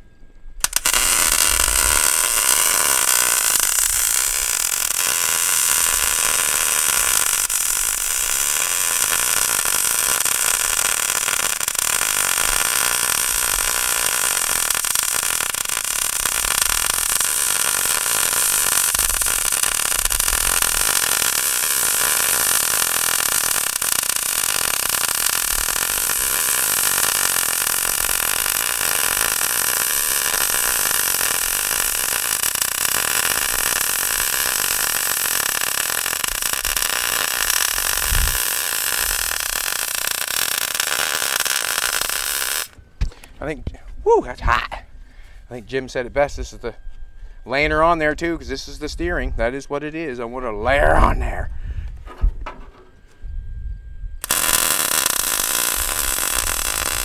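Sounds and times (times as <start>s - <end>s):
angle grinder grinding metal: 0.6s - 42.8s, 54.2s - 57.0s.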